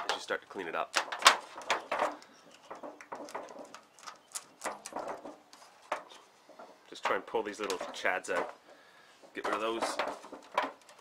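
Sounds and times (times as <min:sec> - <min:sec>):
aluminium foil crinkling: 0:00.9 - 0:06.2.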